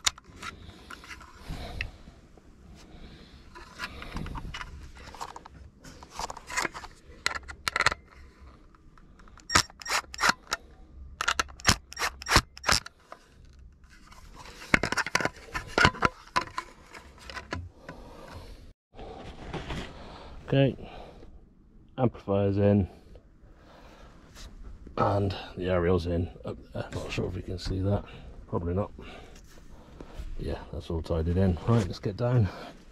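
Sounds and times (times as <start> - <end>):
plastic housing scraping: 0.0 - 2.0, 3.5 - 8.5, 13.8 - 18.5.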